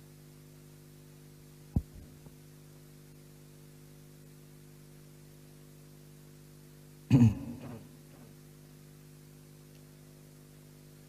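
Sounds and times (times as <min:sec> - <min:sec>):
faint electrical hum and hiss: 0:00.0 - 0:11.0.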